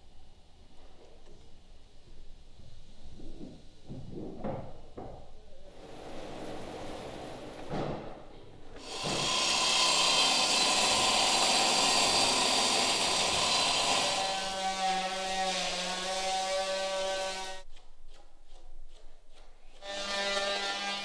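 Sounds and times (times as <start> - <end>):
power tool motor hum: 8.8 - 15.8
circular saw cutting timber: 8.8 - 17.7, 19.7 - 21.0.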